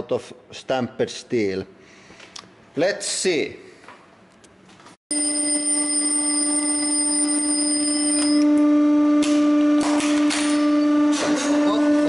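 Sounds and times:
alarm clock bells ringing: 0:05.1 - 0:08.4.

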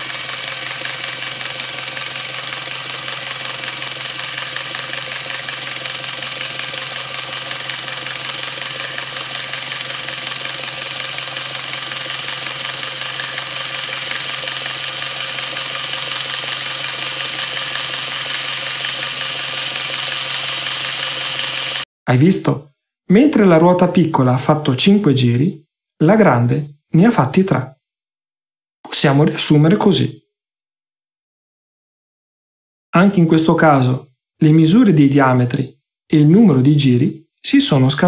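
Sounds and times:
electric motor whirring: 0:00.0 - 0:21.8
plastic gears whining: 0:00.0 - 0:21.8.

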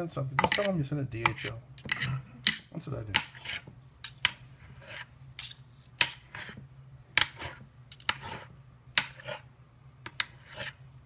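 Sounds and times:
metal claws scraping glass dish: 0:03.2 - 0:06.6, 0:07.2 - 0:09.5, 0:10.1 - 0:10.8.

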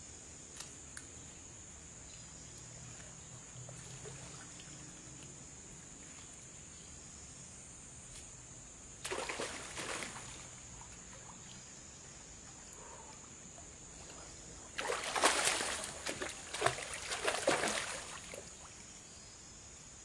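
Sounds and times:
steady high-pitched hiss: 0:00.0 - 0:20.0
water splashing: 0:09.0 - 0:11.7, 0:13.6 - 0:18.8.

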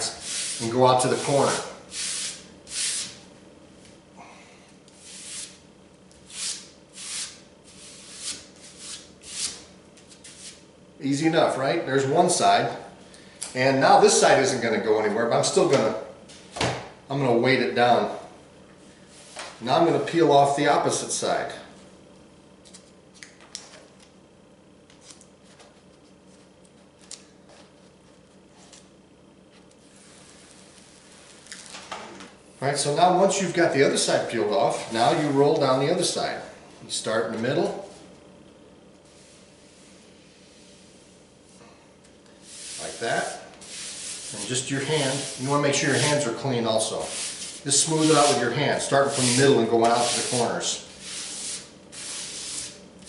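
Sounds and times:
palm swishing on canvas: 0:47.0 - 0:48.4.

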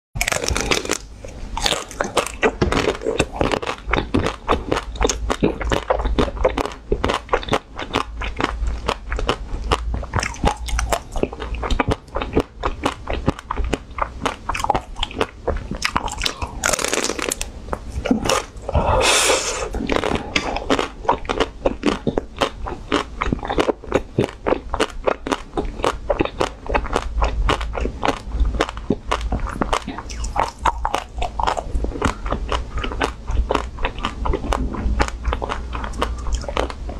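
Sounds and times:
ice cream shell crunching: 0:00.2 - 0:18.7, 0:19.5 - 0:36.9
chewing: 0:00.2 - 0:36.9.

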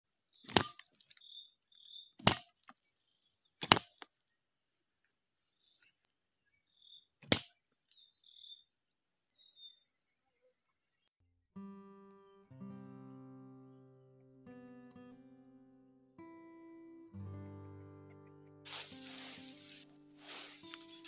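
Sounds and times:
insects buzzing: 0:00.1 - 0:11.1, 0:18.7 - 0:21.0
bamboo pieces knocking: 0:00.4 - 0:01.2, 0:02.2 - 0:02.8, 0:03.6 - 0:04.1, 0:07.2 - 0:07.6.

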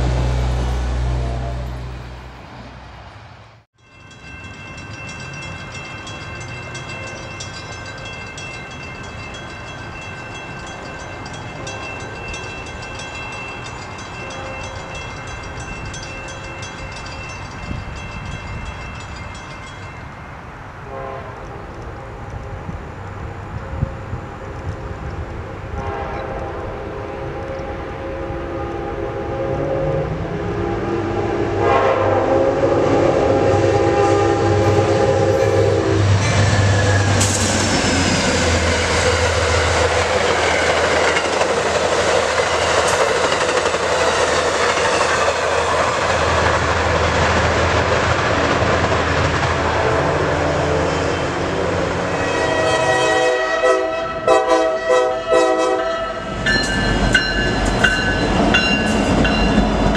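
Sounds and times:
train rushing past: 0:00.0 - 0:59.9
locomotive horn chord: 0:20.8 - 0:21.7, 0:25.7 - 0:37.2, 0:52.1 - 0:56.3
locomotive horn choppy blasts: 0:20.8 - 0:21.8, 0:25.6 - 0:37.2, 0:52.0 - 0:56.6.

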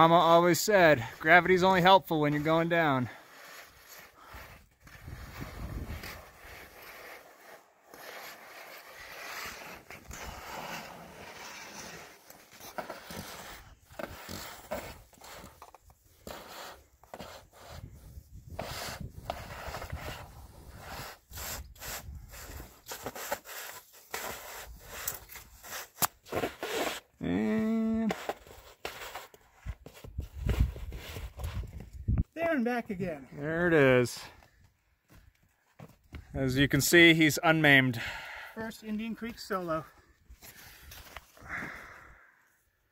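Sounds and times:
shoes scraping against rock: 0:00.7 - 0:27.1, 0:33.7 - 0:36.3.

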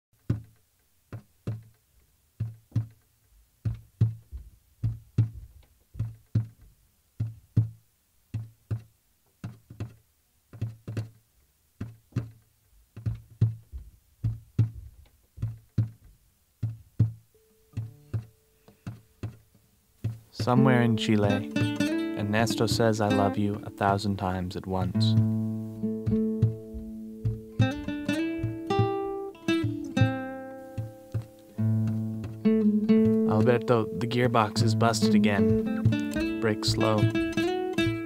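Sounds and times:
plucked guitar notes: 0:20.4 - 0:38.0.

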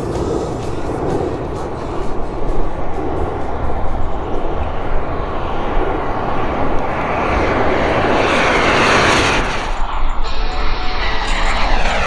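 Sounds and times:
model jet turbine flying past: 0:00.0 - 0:12.0.

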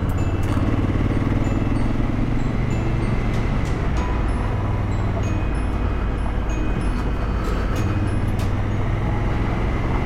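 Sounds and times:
motorcycle engine running: 0:00.0 - 0:05.1.

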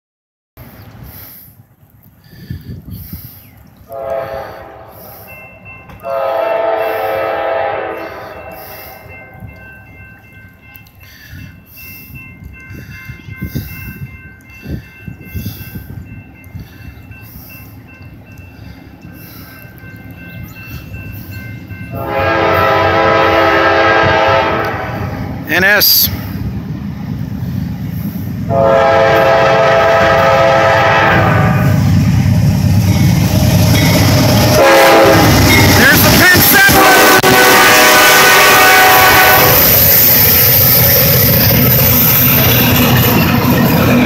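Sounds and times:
locomotive air horn blasts: 0:03.9 - 0:05.3, 0:06.0 - 0:09.1, 0:21.9 - 0:25.1, 0:28.5 - 0:31.9, 0:34.5 - 0:39.7.

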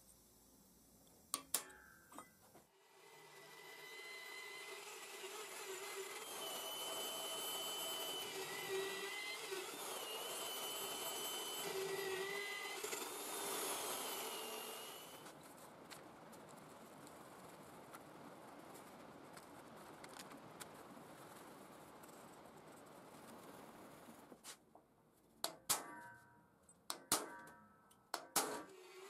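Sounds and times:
drill press motor running: 0:02.9 - 0:15.2.

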